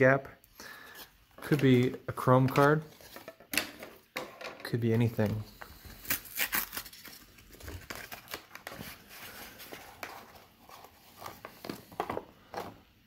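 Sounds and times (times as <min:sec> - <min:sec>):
cardboard box tearing: 0:06.0 - 0:08.4.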